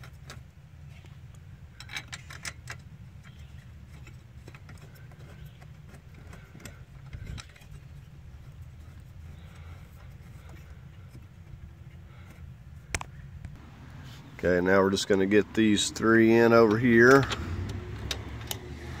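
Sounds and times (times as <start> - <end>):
steady low hum: 0.0 - 18.4
metal tools clinking: 1.7 - 8.0.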